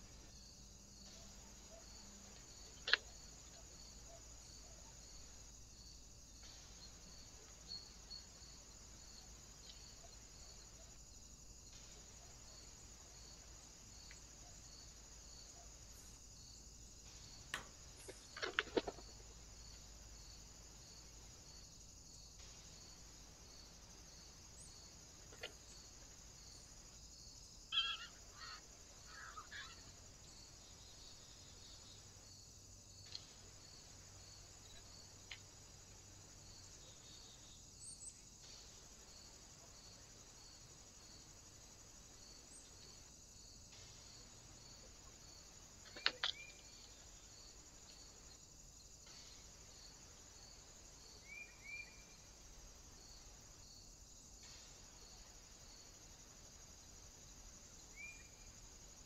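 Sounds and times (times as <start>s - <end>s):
insects chirring: 0.0s - 59.0s
short bird calls: 27.7s - 29.9s.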